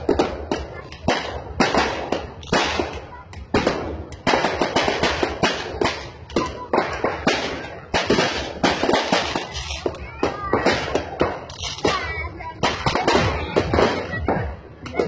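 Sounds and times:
firecrackers banging: 0:00.0 - 0:15.0.

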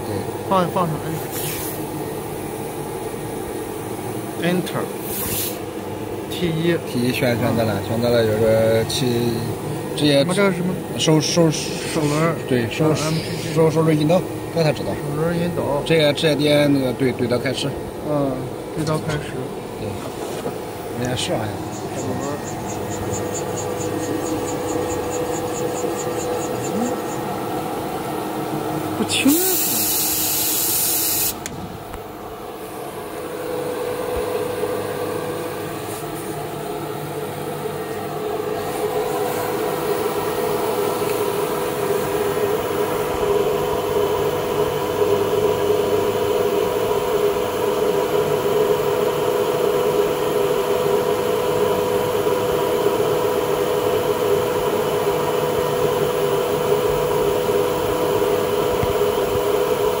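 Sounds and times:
cnc router humming: 0:00.0 - 1:00.0
loud hiss: 0:29.3 - 0:31.4.

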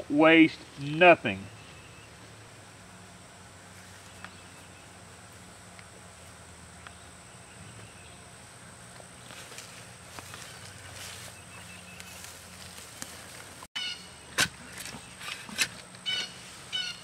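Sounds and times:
fork scraping garden soil: 0:14.3 - 0:16.7.

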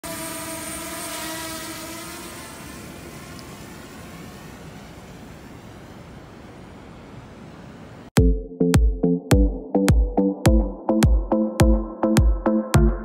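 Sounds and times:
drone propellers whining: 0:00.1 - 0:05.7.

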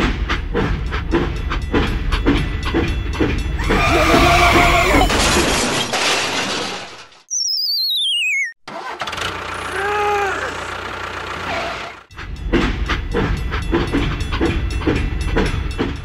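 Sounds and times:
rhythmic engine knocking: 0:00.0 - 0:03.7, 0:09.4 - 0:16.0
cartoon descending wobbling whistle: 0:07.3 - 0:08.6
tractor engine running: 0:08.7 - 0:16.0.

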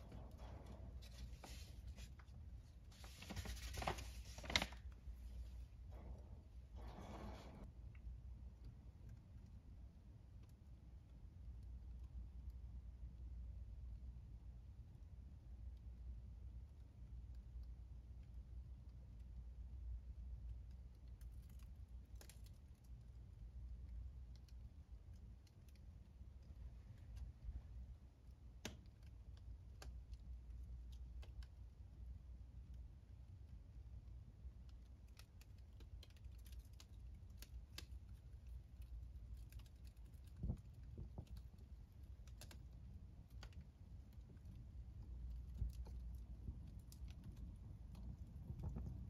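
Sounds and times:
low rumble of burning: 0:00.0 - 0:03.4, 0:04.3 - 0:49.0
low steady hum: 0:00.0 - 0:49.0
wood fire crackling: 0:34.3 - 0:49.0.

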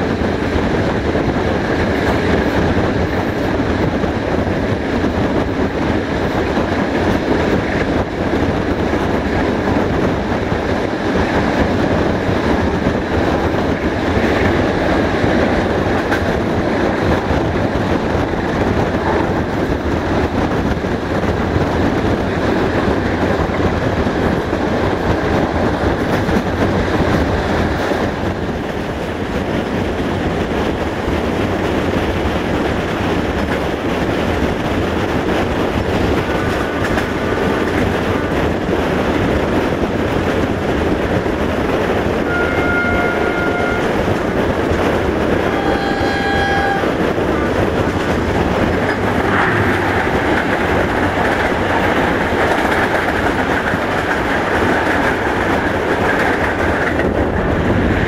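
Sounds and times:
clickety-clack over rail joints: 0:00.0 - 0:58.0
train wheels rumbling on rails: 0:00.0 - 0:58.0
train horn tone: 0:42.2 - 0:44.1, 0:45.4 - 0:47.1.

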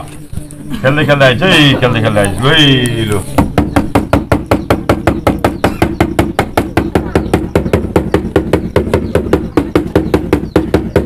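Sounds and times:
frame drum beaten fast: 0:03.4 - 0:11.0.

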